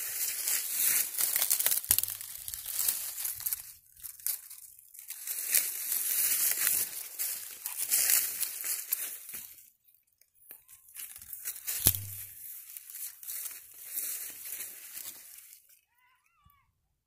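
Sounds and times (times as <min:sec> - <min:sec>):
dry corn leaves crackling: 0:00.0 - 0:15.8
sharp snap: 0:11.8 - 0:12.2.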